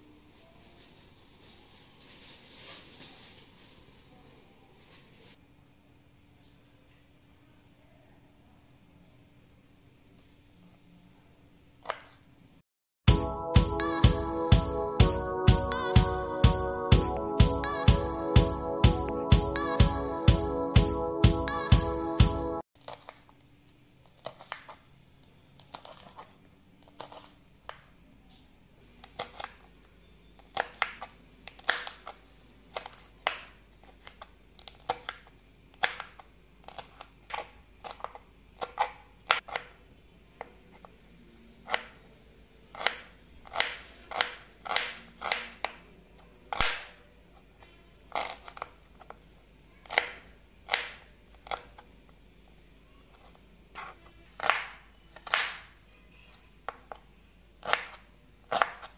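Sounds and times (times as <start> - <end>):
knife chopping on plastic board: 30.5 - 39.8, 41.7 - 42.0, 42.7 - 45.8, 49.8 - 51.9, 53.8 - 55.7, 57.6 - 58.9.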